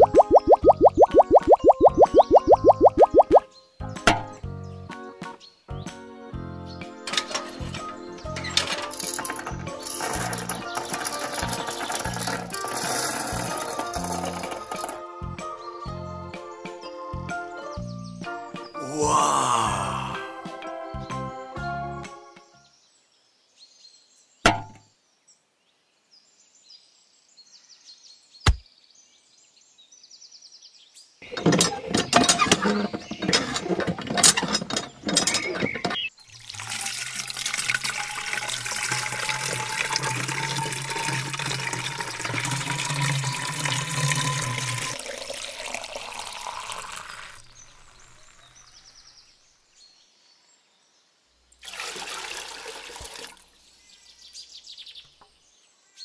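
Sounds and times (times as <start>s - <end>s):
water poured from plastic cup: 0.0s - 3.4s, 36.2s - 48.8s, 51.6s - 53.5s
water stream splashing into pool: 0.0s - 3.4s, 36.1s - 48.9s, 51.6s - 53.6s
hand pump clattering: 7.1s - 15.0s, 31.2s - 36.1s, 37.4s - 46.1s.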